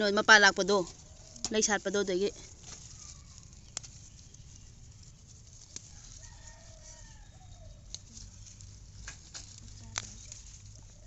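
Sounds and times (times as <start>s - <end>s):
faint rooster crowing: 5.8s - 8.4s.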